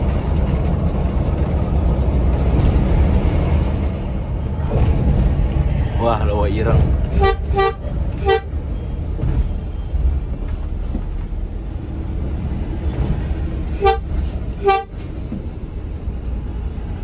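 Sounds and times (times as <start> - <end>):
bus engine rumble: 0.0 - 17.0
road noise: 0.0 - 17.0
bus horn toots: 7.1 - 8.6, 13.7 - 15.0.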